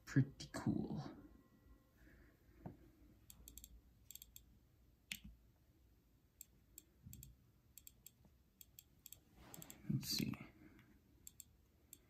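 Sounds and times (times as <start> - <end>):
click wheel ticking: 3.2 - 4.5, 6.4 - 9.8, 11.2 - 12.0.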